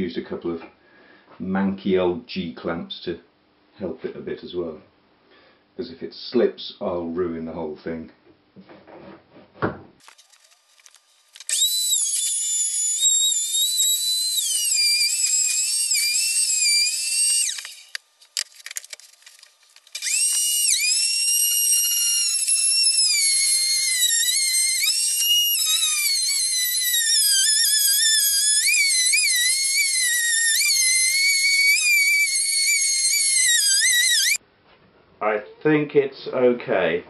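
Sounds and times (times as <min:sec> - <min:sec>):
electric router motor whine: 0:11.4 - 0:18.0, 0:19.9 - 0:34.4.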